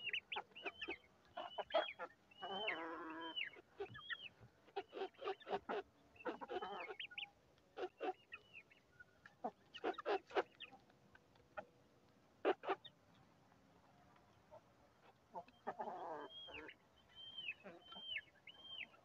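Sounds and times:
chicks peeping: 0:00.0 - 0:07.2
chickens clucking: 0:00.0 - 0:11.6, 0:12.4 - 0:13.2, 0:14.2 - 0:19.0.

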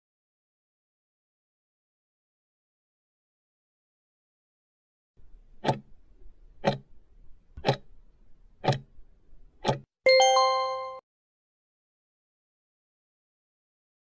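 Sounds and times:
clock ticks: 0:05.6 - 0:06.0, 0:06.6 - 0:06.9, 0:07.6 - 0:07.9, 0:08.6 - 0:08.9, 0:09.6 - 0:09.9
bright chime: 0:10.1 - 0:11.0.

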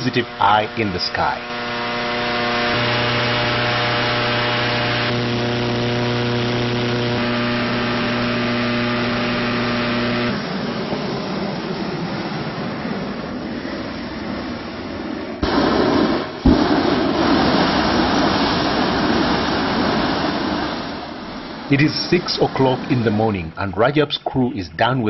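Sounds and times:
propane burner blast: 0:00.0 - 0:12.0, 0:12.7 - 0:23.8
machine hum with pitched tone: 0:00.0 - 0:12.1.

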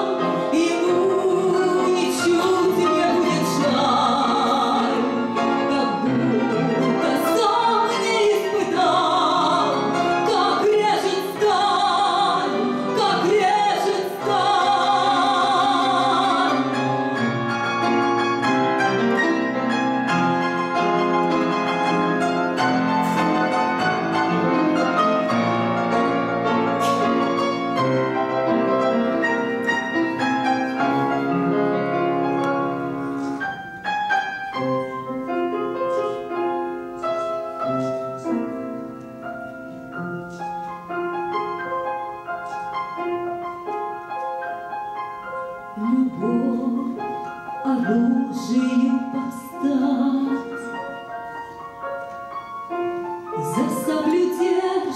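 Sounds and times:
woman singing with vibrato: 0:00.0 - 0:17.2, 0:45.8 - 0:50.8, 0:53.4 - 0:54.9
grand piano: 0:00.0 - 0:54.9.

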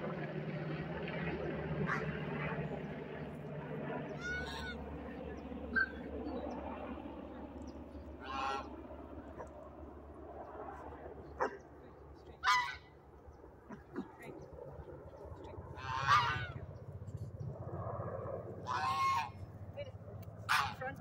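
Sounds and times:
geese honking: 0:04.2 - 0:04.8, 0:08.2 - 0:08.7, 0:12.4 - 0:12.9, 0:15.7 - 0:16.6, 0:18.6 - 0:19.4, 0:20.4 - 0:21.0.

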